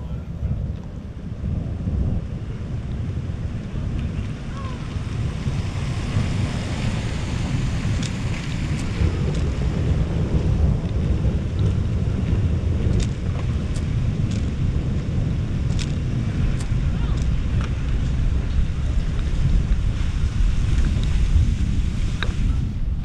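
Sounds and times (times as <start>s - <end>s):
wind buffeting microphone: 0.0s - 23.0s
light sharp ticks: 12.9s - 14.5s, 15.7s - 16.0s.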